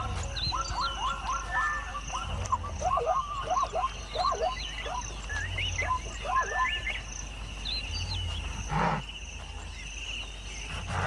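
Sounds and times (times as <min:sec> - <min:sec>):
birds whistling: 0:00.0 - 0:11.0
insect drone: 0:00.0 - 0:11.0
large animal breathy huff: 0:10.7 - 0:11.0.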